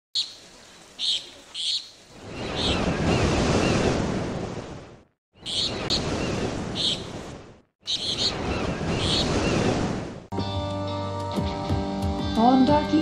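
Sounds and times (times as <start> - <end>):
surf washing in: 2.1 - 10.3.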